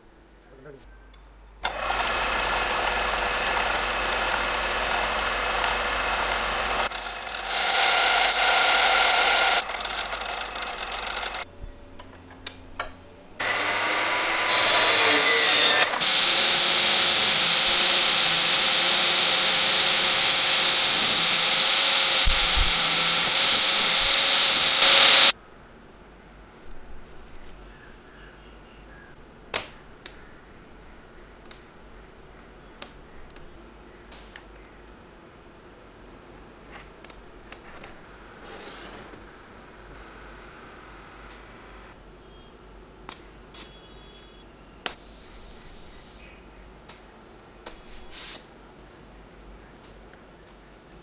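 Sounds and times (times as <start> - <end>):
drill press drilling steel: 1.6 - 11.4, 13.4 - 25.3
cut-off saw grinding steel: 1.7 - 11.4, 13.4 - 25.4.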